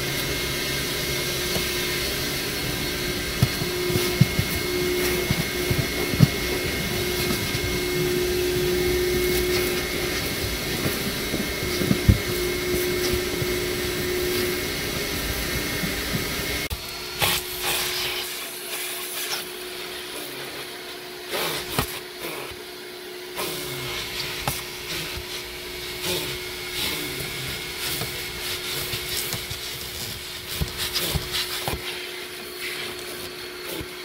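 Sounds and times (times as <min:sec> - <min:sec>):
vacuum cleaner whine: 0:00.0 - 0:34.0
nozzle knocking and scraping: 0:01.5 - 0:16.7.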